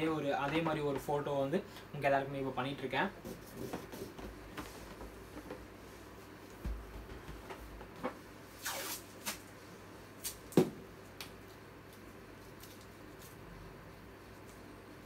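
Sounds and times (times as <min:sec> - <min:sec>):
balloon rustling: 0:08.6 - 0:09.5.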